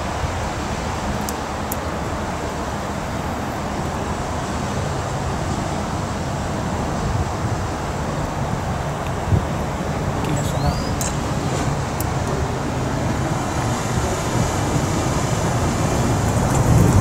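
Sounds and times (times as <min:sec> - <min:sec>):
low engine rumble: 0:00.0 - 0:17.0
outdoor noise: 0:00.0 - 0:17.0.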